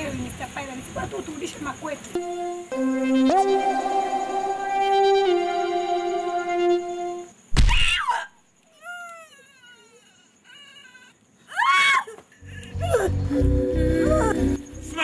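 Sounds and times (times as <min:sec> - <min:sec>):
held synthesizer notes: 0:02.2 - 0:07.3
faint whimpering cries: 0:08.0 - 0:14.5
woman crying out in pain: 0:12.8 - 0:13.2.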